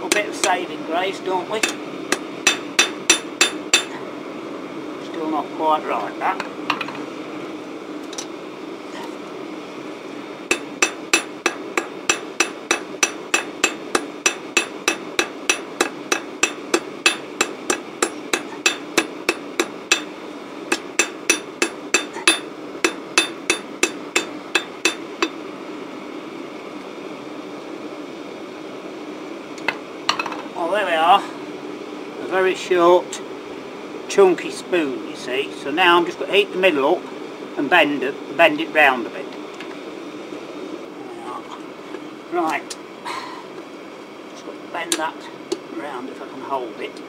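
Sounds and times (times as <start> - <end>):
hammer striking steel on anvil: 1.6 - 4.0, 10.5 - 25.4.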